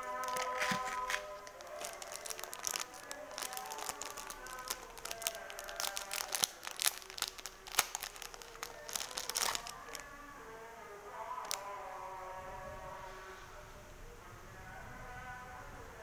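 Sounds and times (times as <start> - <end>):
wrapping crinkling: 0.0 - 10.1
faint background music: 0.0 - 16.0.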